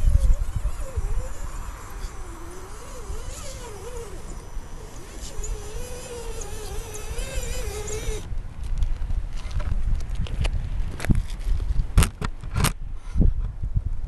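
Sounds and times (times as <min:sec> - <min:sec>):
electric motor whining: 0:00.0 - 0:08.3.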